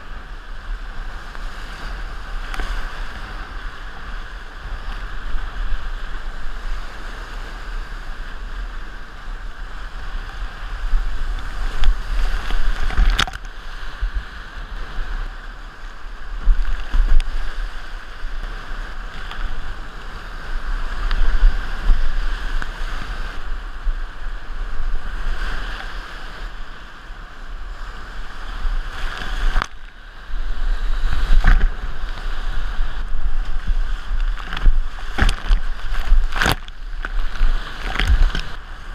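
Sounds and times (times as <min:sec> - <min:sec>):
wind on microphone: 0:00.0 - 0:38.9
paddle strokes splashing: 0:28.2 - 0:38.9.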